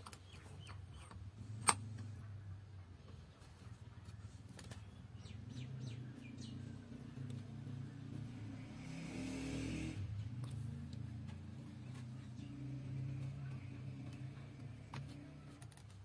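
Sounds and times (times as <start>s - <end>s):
small bird chirping: 0.0s - 1.3s.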